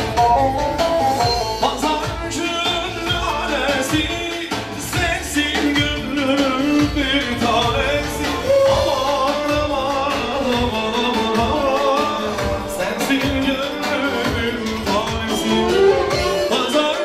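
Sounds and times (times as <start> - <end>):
steady drum beat: 0.0 - 17.0
wavering lead melody: 11.8 - 17.0.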